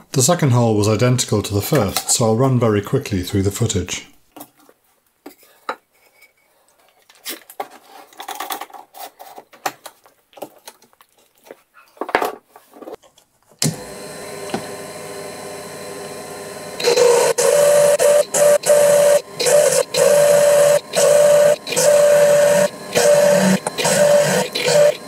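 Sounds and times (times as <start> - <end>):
mini mill motor running: 13.6 - 25.0
core drill grinding stone: 13.7 - 25.0.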